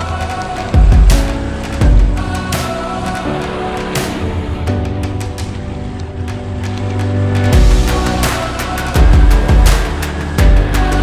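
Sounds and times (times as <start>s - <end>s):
music with heavy beat: 0.0s - 11.0s
deep bass hits: 0.8s - 3.3s, 7.5s - 11.0s.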